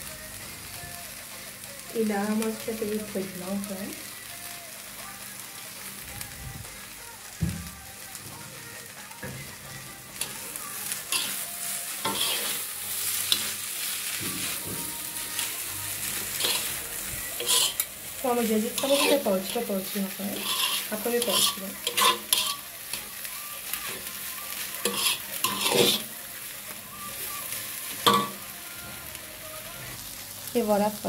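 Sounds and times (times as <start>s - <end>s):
stir-fry sizzling in wok: 0.0s - 31.0s
spatula scraping and knocking pan: 12.1s - 12.5s, 17.4s - 17.9s, 18.7s - 19.2s, 20.4s - 22.6s, 24.9s - 26.1s.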